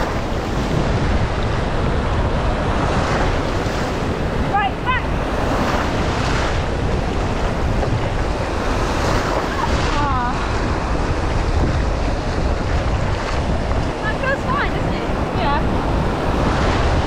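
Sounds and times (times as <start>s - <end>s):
rumble of bike ride: 0.0s - 17.0s
wind rushing over microphone: 0.0s - 17.0s.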